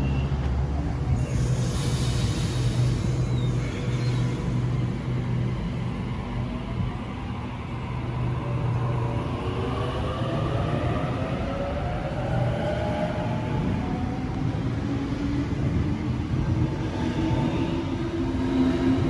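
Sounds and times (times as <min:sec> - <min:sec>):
electric train hum: 0:00.0 - 0:19.0
air hiss: 0:01.2 - 0:04.3.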